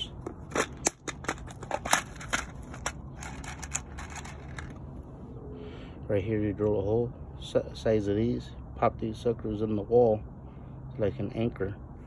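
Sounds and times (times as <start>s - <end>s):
plastic box of screws rattling: 0.3s - 4.8s.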